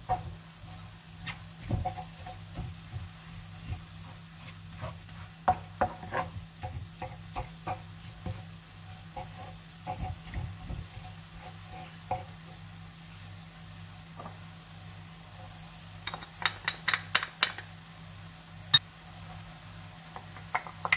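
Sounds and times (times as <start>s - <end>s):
meat frying in a pan: 0.0s - 20.9s
spatula scraping a pan: 0.1s - 12.3s.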